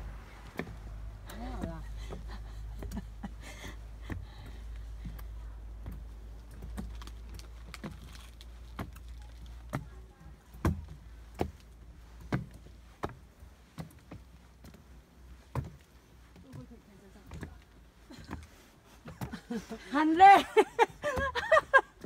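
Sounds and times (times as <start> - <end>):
low rumble: 0.0 - 2.8
footsteps on trail steps: 0.0 - 22.0.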